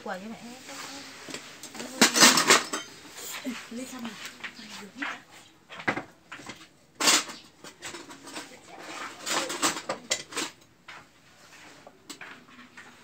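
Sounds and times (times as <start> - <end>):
bowls and spoons clattering on metal tray: 1.2 - 11.1.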